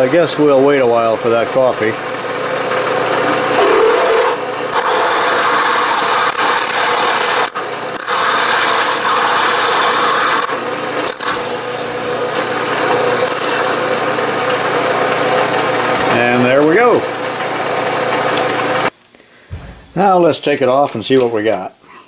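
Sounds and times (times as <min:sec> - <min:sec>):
machine running hum: 0:00.0 - 0:18.9
drill grinding through metal: 0:02.6 - 0:14.1.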